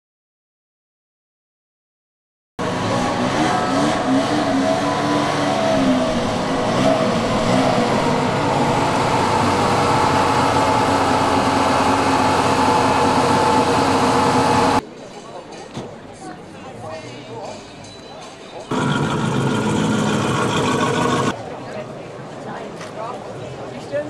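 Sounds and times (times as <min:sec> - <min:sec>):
car engine revving: 0:02.6 - 0:14.8, 0:18.7 - 0:21.4.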